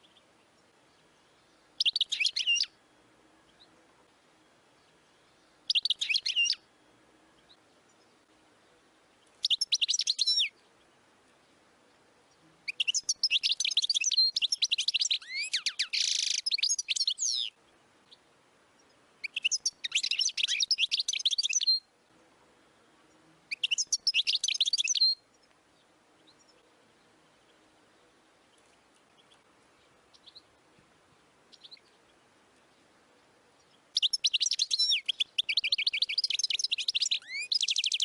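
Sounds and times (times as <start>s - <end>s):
goldfinch twittering song: 0.0s - 2.7s, 5.3s - 6.6s, 9.2s - 10.9s, 12.7s - 18.2s, 18.8s - 21.9s, 23.1s - 26.6s, 33.6s - 38.0s.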